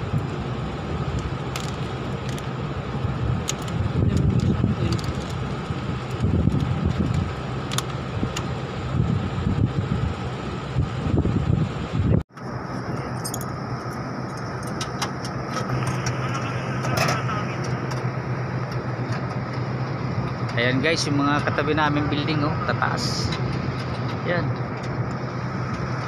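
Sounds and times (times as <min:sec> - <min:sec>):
wind buffeting microphone: 0:00.0 - 0:12.3
steady background hum: 0:00.0 - 0:26.0.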